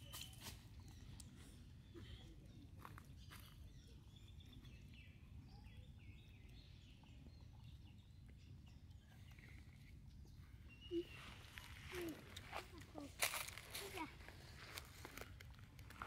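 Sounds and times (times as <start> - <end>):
faint high chirps: 0.0 - 12.4.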